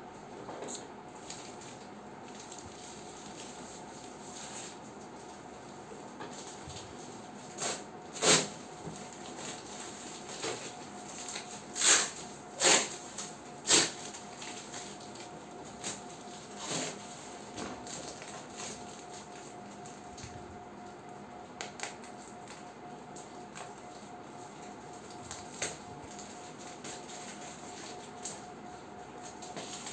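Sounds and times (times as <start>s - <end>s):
plastic wrap crinkling and tearing: 24.6s - 28.4s.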